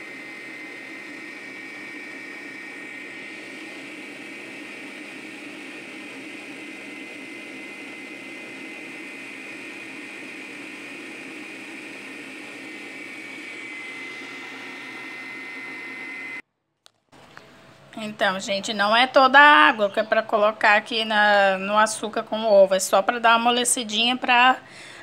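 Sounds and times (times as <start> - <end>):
stand mixer whirring: 0.0 - 16.4.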